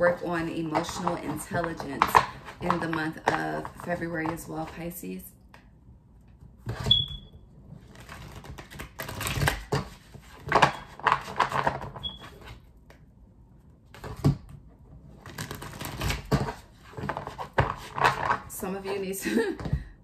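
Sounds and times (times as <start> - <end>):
cards being shuffled: 7.8 - 12.6, 15.2 - 18.4.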